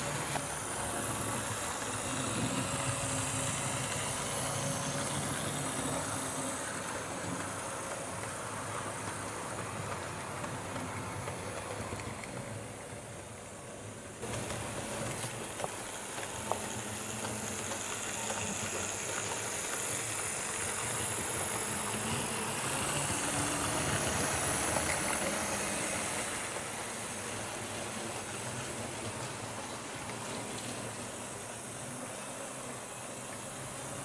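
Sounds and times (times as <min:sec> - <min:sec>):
model train rolling on track: 0:00.0 - 0:34.0.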